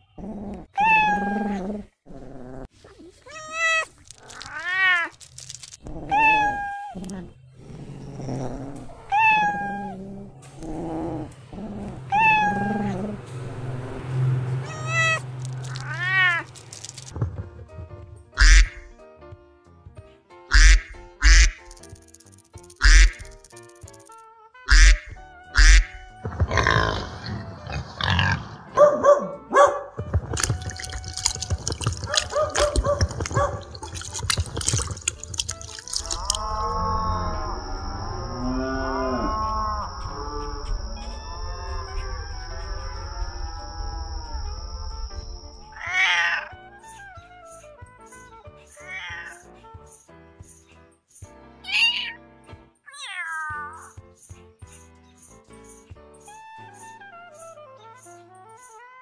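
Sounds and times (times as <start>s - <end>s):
cat meowing: 0.7s - 1.7s, 3.0s - 5.2s, 5.9s - 7.3s, 9.0s - 10.2s, 12.1s - 13.1s, 14.6s - 16.6s, 45.8s - 46.7s, 48.8s - 49.5s, 51.7s - 52.2s, 52.9s - 53.8s
background music: 16.1s - 37.8s, 44.9s - 52.8s.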